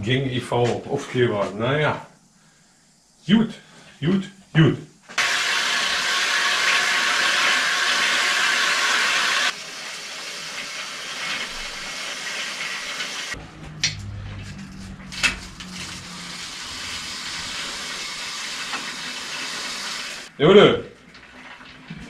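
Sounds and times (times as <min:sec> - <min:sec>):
low hum: 0:13.4 - 0:17.8.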